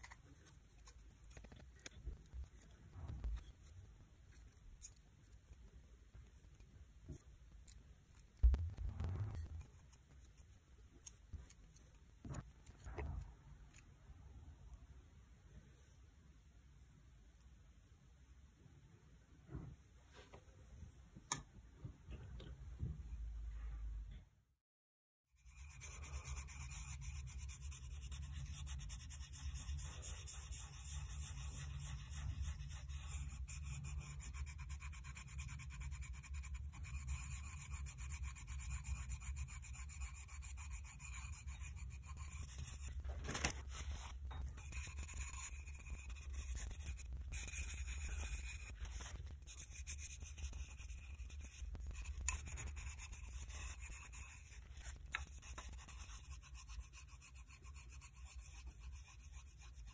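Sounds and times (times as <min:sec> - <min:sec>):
scratchy sanding on ceramic: 0:25.4 - 0:42.9, 0:44.5 - 0:59.9.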